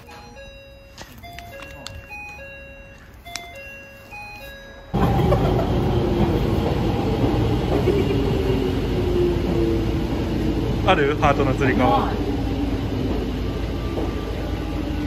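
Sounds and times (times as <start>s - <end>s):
chiming melody: 0.0s - 5.6s
train running along platform: 0.0s - 15.0s.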